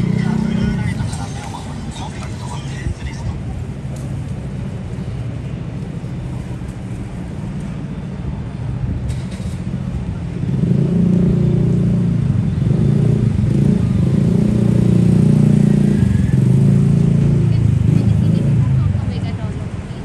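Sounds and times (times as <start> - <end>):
vehicle engine droning: 0.0 - 20.0.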